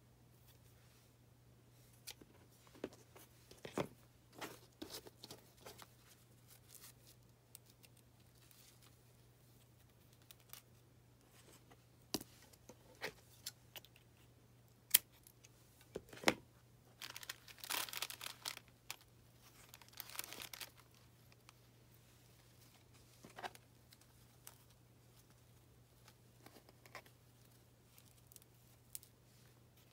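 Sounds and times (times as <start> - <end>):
plastic bag crinkling: 17.0 - 21.1.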